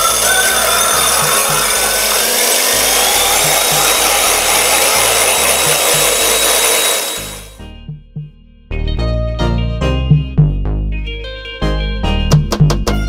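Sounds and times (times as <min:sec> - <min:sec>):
electric hand mixer whirring: 0:00.0 - 0:07.6.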